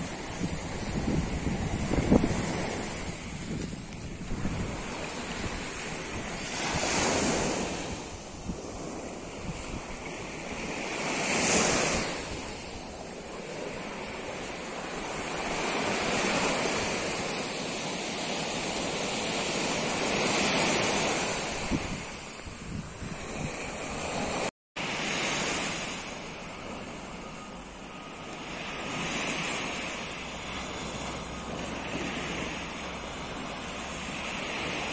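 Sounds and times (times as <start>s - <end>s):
wind buffeting the microphone: 0.0s - 24.5s
waves breaking on a beach: 0.0s - 34.9s.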